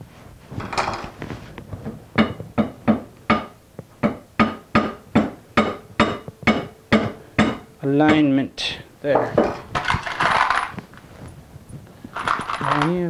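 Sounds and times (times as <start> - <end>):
mallet tapping metal plate: 2.2 - 8.3.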